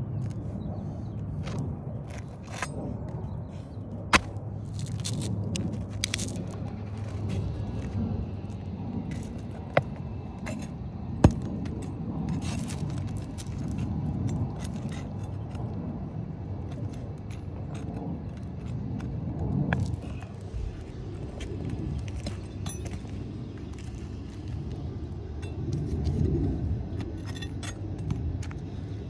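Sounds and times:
low rumble: 0.0s - 29.0s
pry bar scraping under shingles: 1.4s - 15.8s.

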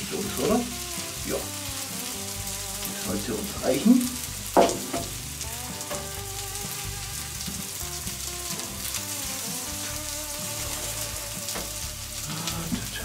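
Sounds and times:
food sizzling and crackling: 0.0s - 13.0s
metal clank of pan: 4.6s - 5.2s, 5.8s - 6.2s.

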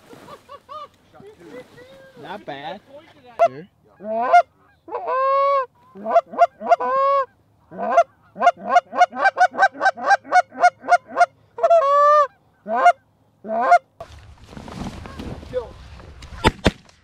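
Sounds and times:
goose call honks and moans: 3.4s - 13.9s.

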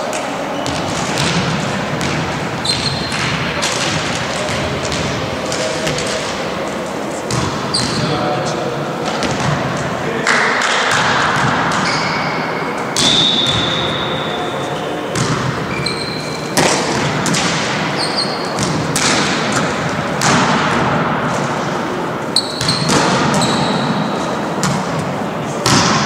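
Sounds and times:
volleyballs smacking and bouncing: 0.0s - 8.4s, 9.0s - 14.1s, 15.1s - 26.0s
short high squeaks: 18.0s - 18.5s.

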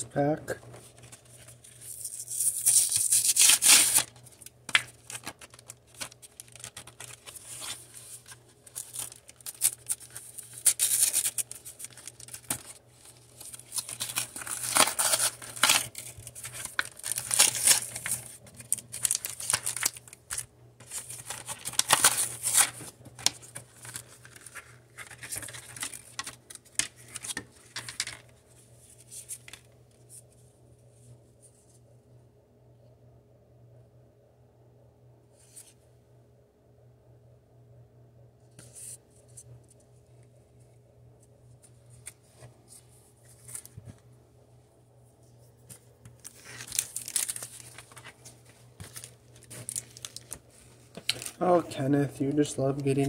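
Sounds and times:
cards and cardboard handled: 0.7s - 29.7s, 45.6s - 51.4s
plastic blister pack crinkling: 0.9s - 28.2s, 46.2s - 51.5s.

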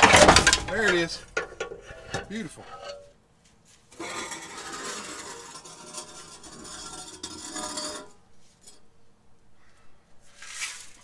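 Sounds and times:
debris rattling inside muffler: 0.0s - 3.1s.

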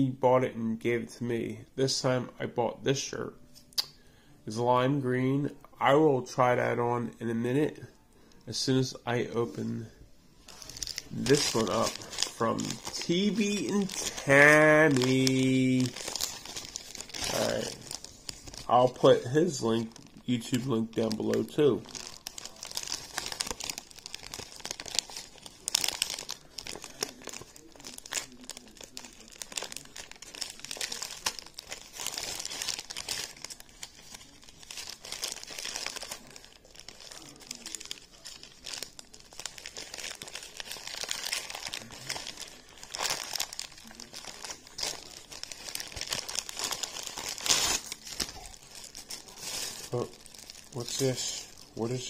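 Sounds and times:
plastic packaging crinkling: 10.4s - 52.0s.

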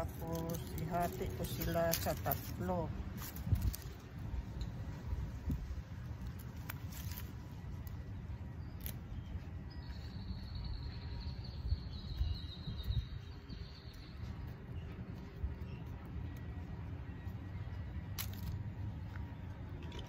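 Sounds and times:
garden shears snipping: 0.0s - 4.7s, 5.3s - 8.1s, 18.0s - 19.2s.

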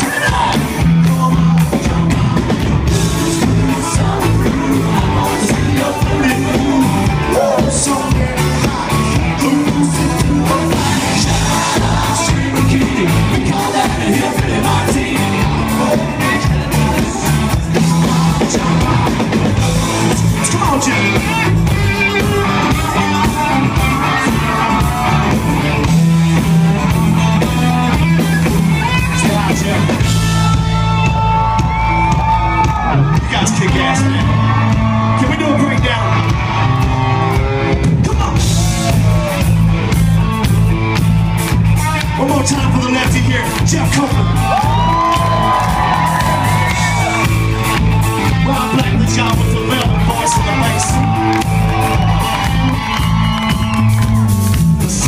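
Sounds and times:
person singing lead vocals: 0.0s - 31.7s, 48.3s - 53.9s
bass guitar: 0.0s - 55.0s
drum kit: 0.0s - 55.0s
electric guitars: 0.0s - 55.0s.

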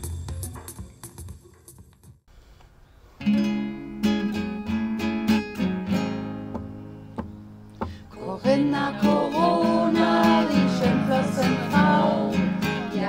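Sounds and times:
music: 0.0s - 2.3s, 3.2s - 13.0s
acoustic guitar strumming chords: 3.2s - 13.0s.

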